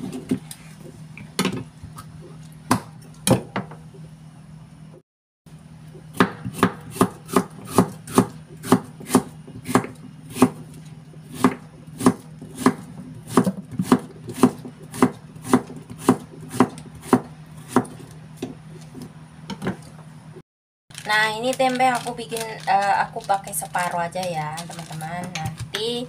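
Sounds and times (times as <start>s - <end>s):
knife chopping on wooden board: 6.1s - 10.7s, 11.3s - 18.6s.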